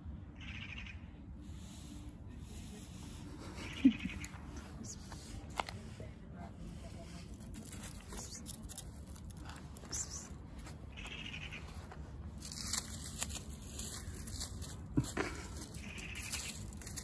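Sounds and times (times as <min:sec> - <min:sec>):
dry leaves rustling and crackling: 0:06.8 - 0:17.0.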